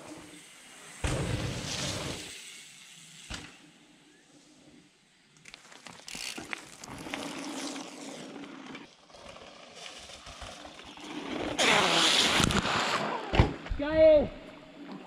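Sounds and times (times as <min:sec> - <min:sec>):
bike tyres crunching on gravel: 0:05.4 - 0:12.8.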